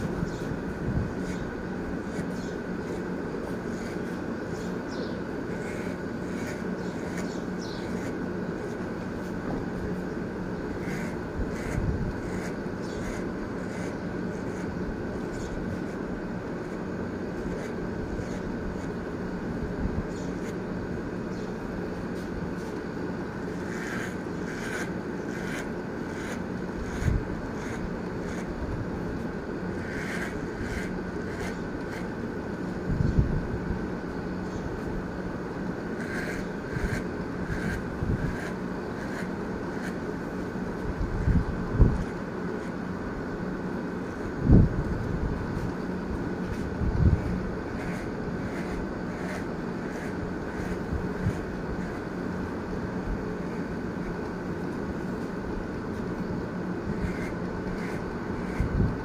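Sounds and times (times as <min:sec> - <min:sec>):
hair clippers buzzing: 0:05.5 - 0:08.9, 0:10.7 - 0:15.6, 0:23.4 - 0:28.6, 0:29.6 - 0:32.1, 0:35.9 - 0:40.0, 0:47.2 - 0:52.0, 0:56.9 - 0:58.7.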